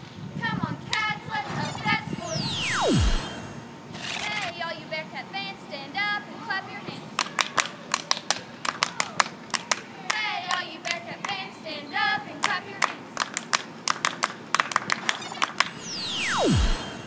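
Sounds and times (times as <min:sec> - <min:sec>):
people clapping in rhythm: 0:07.2 - 0:11.4, 0:12.4 - 0:15.7.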